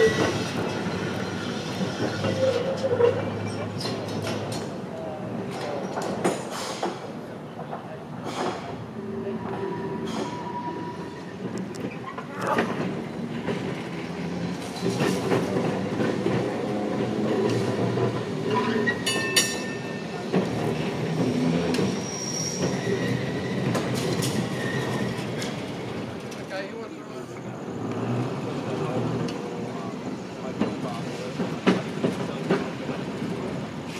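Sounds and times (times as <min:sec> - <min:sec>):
high wheel squeals: 0:00.0 - 0:04.0, 0:09.4 - 0:12.2, 0:18.5 - 0:20.1, 0:21.7 - 0:25.4
tram wheels rumbling on rail: 0:00.0 - 0:33.9.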